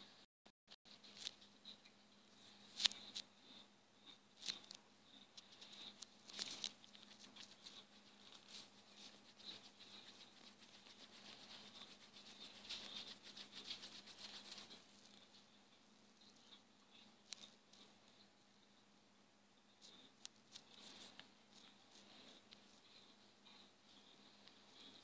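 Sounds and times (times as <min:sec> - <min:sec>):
scribbling on a touchscreen: 0:06.6 - 0:14.9.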